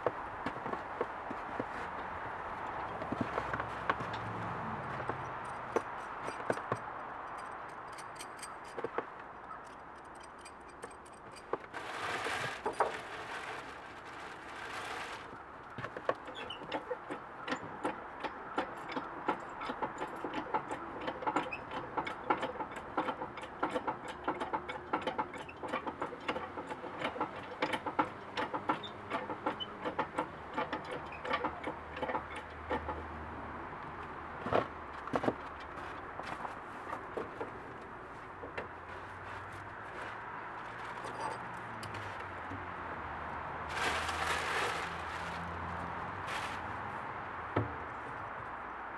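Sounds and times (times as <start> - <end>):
metallic clicks and knocks of hoist: 5.1 - 11.7, 16.2 - 33.1.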